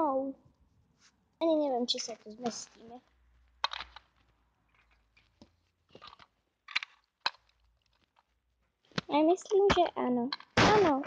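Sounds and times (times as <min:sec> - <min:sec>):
light plastic clicks and rustles: 0:03.6 - 0:10.6.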